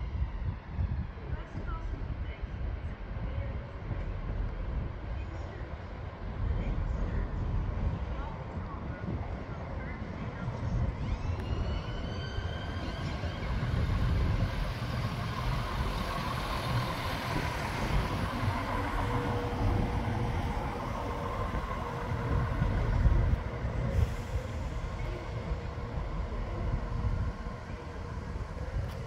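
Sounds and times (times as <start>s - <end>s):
diesel train rumbling: 0.0s - 29.0s.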